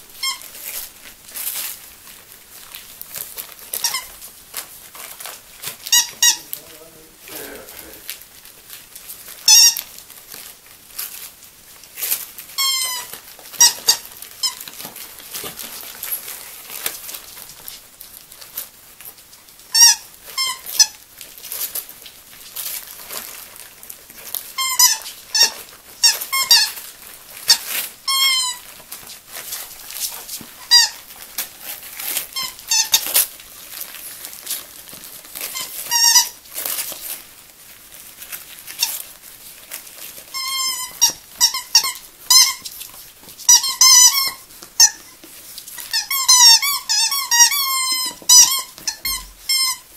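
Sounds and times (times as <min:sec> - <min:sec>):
wrapping paper crinkling: 0:00.0 - 0:49.9
squeaky dog toy squeaking: 0:00.2 - 0:00.7, 0:03.7 - 0:04.2, 0:05.9 - 0:06.5, 0:09.5 - 0:09.8, 0:12.6 - 0:14.7, 0:19.7 - 0:21.0, 0:24.6 - 0:26.8, 0:27.5 - 0:28.7, 0:30.6 - 0:31.0, 0:32.3 - 0:33.2, 0:35.4 - 0:36.4, 0:40.3 - 0:42.7, 0:43.5 - 0:45.2, 0:45.8 - 0:49.9.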